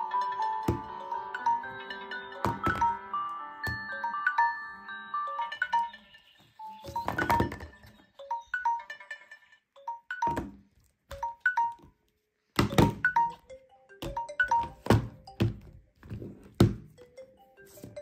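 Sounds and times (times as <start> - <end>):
phone ringtone melody: 0.0 - 12.0, 12.7 - 18.0.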